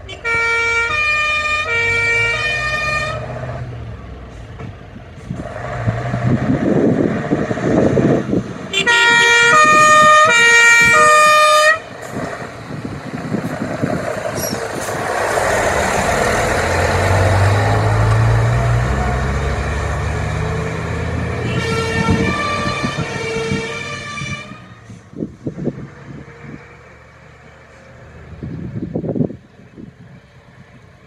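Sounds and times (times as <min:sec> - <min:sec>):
fire truck diesel engine passing: 0:00.0 - 0:31.0
two-tone emergency horn: 0:00.1 - 0:03.3, 0:08.7 - 0:11.9, 0:21.4 - 0:24.8.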